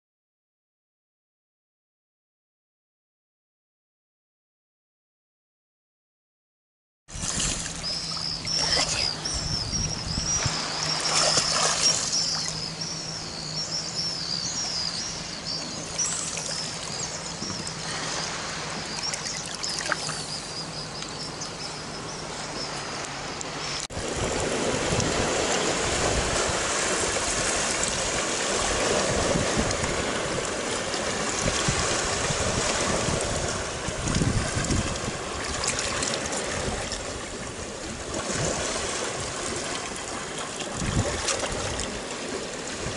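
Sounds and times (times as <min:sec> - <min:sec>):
shallow water sloshing: 0:07.1 - 0:21.5, 0:24.3 - 0:42.9
high wavering chirping: 0:07.8 - 0:23.9
sea water washing on rocks: 0:10.4 - 0:12.6, 0:23.9 - 0:42.9.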